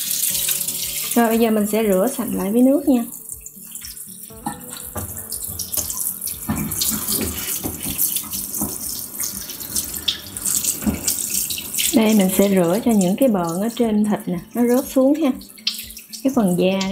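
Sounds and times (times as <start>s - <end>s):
tap water splashing on meat: 3.3s - 16.9s.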